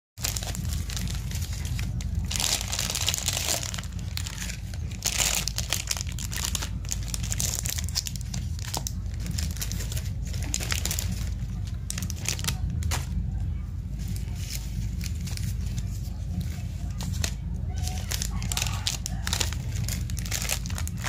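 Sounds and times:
plastic candy wrappers crinkling: 0:00.2 - 0:13.3, 0:13.9 - 0:21.0
steady low hum: 0:00.2 - 0:21.0.

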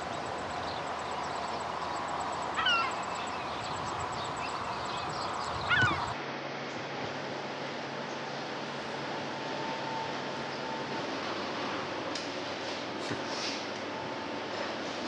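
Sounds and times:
loud bird calls: 0:00.0 - 0:06.2
steady outdoor hiss: 0:00.0 - 0:15.0.

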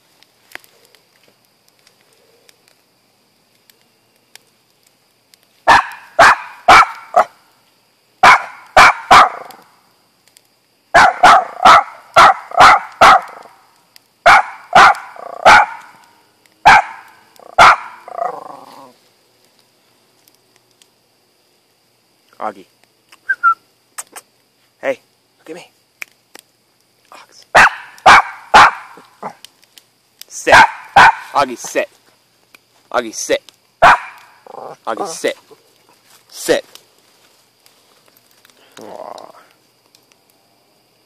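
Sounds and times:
small dog barking: 0:05.7 - 0:07.4, 0:08.2 - 0:09.6, 0:11.0 - 0:13.5, 0:14.2 - 0:15.9, 0:16.6 - 0:18.6, 0:27.6 - 0:29.4, 0:30.5 - 0:31.4, 0:33.8 - 0:35.2.

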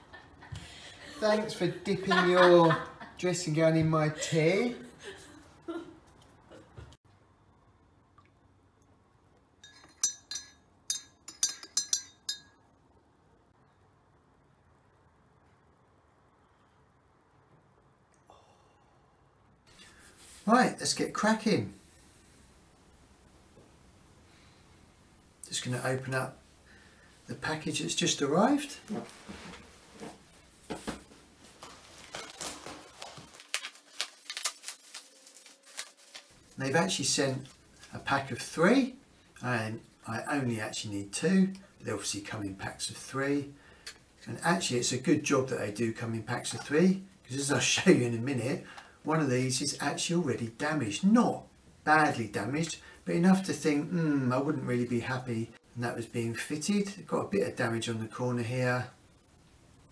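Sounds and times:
teaspoon clinking in ceramic mug: 0:09.6 - 0:12.6
bubble wrap crinkling: 0:31.3 - 0:38.0.

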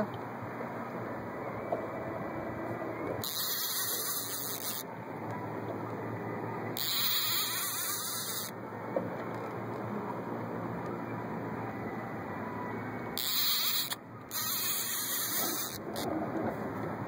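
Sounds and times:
fishing reel drag buzzing: 0:03.2 - 0:04.8, 0:06.8 - 0:08.5, 0:13.2 - 0:16.1.

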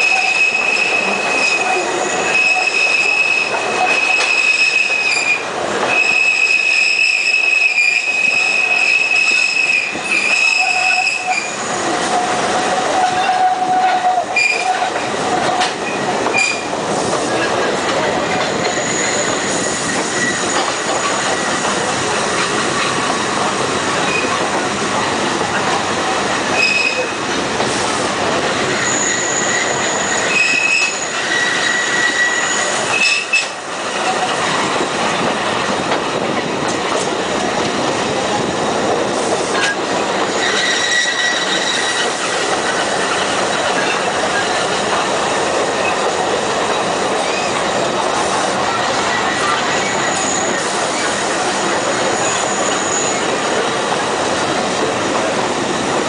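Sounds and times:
high wheel squeals: 0:00.0 - 0:11.8, 0:28.7 - 0:33.5, 0:40.3 - 0:42.2, 0:49.2 - 0:51.1, 0:51.8 - 0:53.4
train wheels rumbling on rail: 0:00.0 - 0:56.0.

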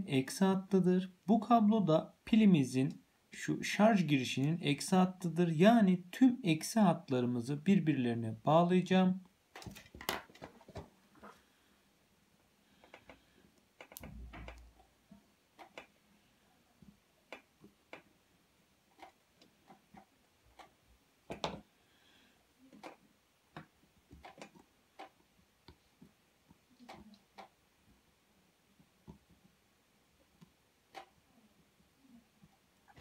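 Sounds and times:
small clicks and taps of tools: 0:13.8 - 0:14.7.

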